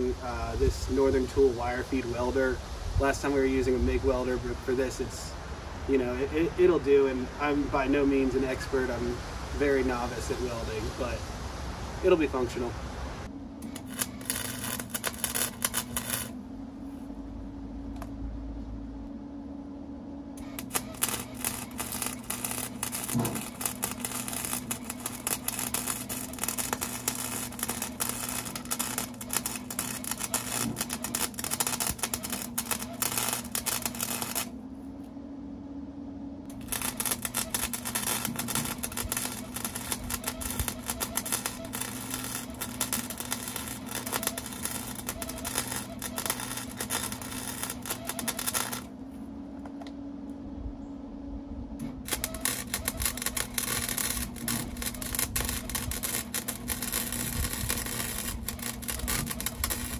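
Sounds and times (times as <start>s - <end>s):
welder crackling: 0.0s - 17.1s, 20.4s - 34.6s, 36.4s - 49.0s, 51.8s - 59.9s
steady hum: 0.0s - 59.9s.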